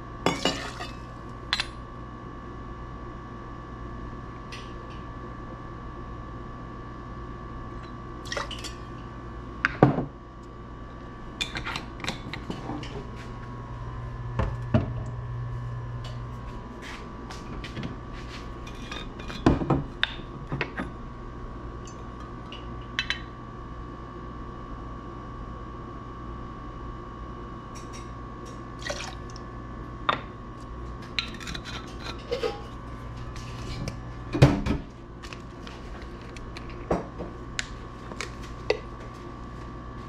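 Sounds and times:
liquid pouring: 28.8 - 29.4.

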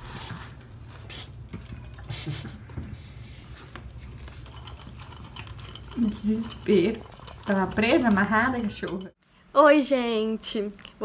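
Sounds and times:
kibble rattling into metal bowl: 4.3 - 9.1.

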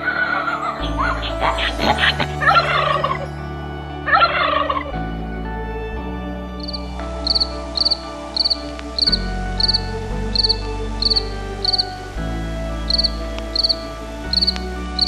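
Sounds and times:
music of sustained chords: 0.0 - 15.0
cricket chirping: 6.6 - 12.1, 12.8 - 15.0.

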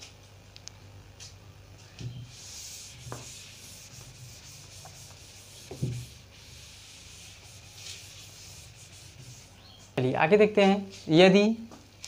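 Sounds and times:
rag wiping whiteboard: 2.0 - 9.8
dull knocks: 5.6 - 6.1.

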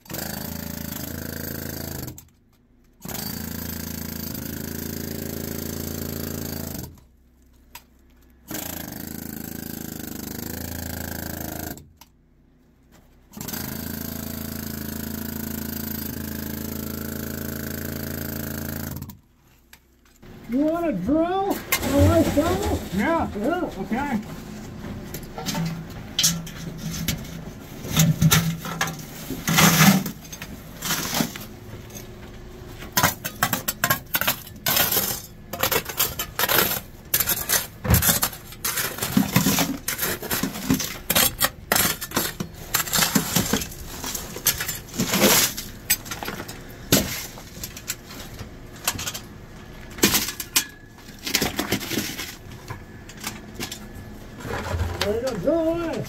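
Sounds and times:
shovel scraping and striking rock: 21.4 - 24.2, 25.2 - 32.0, 32.9 - 49.2
rock clattering: 21.6 - 24.3.

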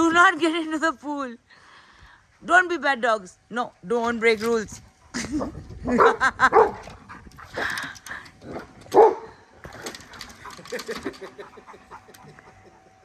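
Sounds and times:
dog barking: 5.9 - 6.8, 8.9 - 9.3.

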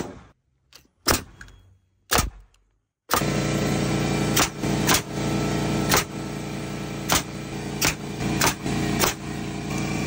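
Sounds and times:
nail gun shots into wood: 2.1 - 3.4, 4.3 - 5.1, 5.9 - 6.2, 7.0 - 9.3
air compressor running: 3.1 - 10.0.

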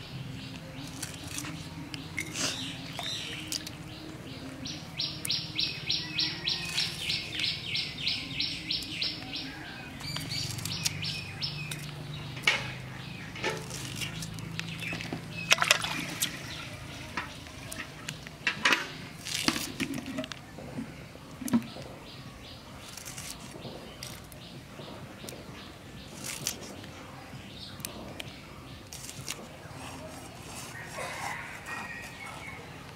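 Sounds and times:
chillies snapping as cut: 0.8 - 3.8, 10.0 - 16.4, 19.2 - 19.9, 22.8 - 24.4, 26.0 - 26.9, 27.8 - 29.5.

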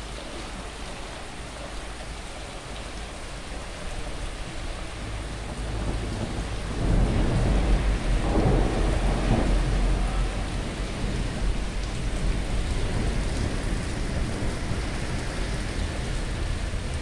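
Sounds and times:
rain falling: 0.0 - 17.0
deep rumble: 5.0 - 17.0.

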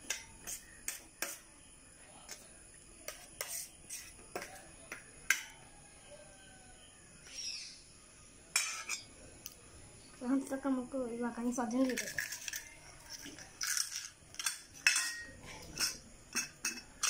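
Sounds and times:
spoon scraping a steel plate: 0.0 - 1.4, 3.1 - 4.6, 8.5 - 9.1, 11.8 - 17.0.

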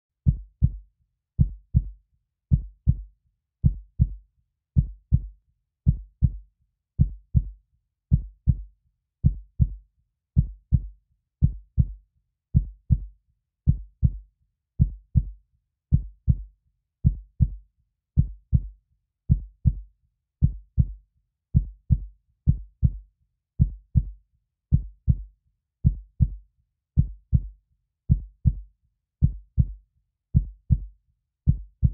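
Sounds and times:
heartbeat thumps: 0.3 - 0.8, 1.4 - 1.9, 2.5 - 3.0, 3.6 - 4.2, 4.8 - 5.3, 5.9 - 6.4, 7.0 - 7.5, 8.1 - 8.6, 9.2 - 9.8, 10.4 - 12.0, 12.6 - 13.1, 13.7 - 14.2, 14.8 - 15.3, 15.9 - 16.4, 18.2 - 18.7, 19.3 - 19.8, 20.4 - 21.0, 21.6 - 23.0, 23.6 - 26.4, 27.0 - 27.5, 28.1 - 28.6, 29.2 - 29.8, 30.4 - 30.9, 31.5 - 31.9.

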